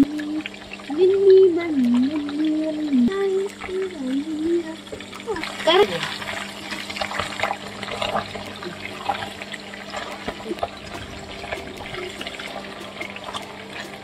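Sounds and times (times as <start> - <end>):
oil sizzling in a pan: 0.0 - 14.0.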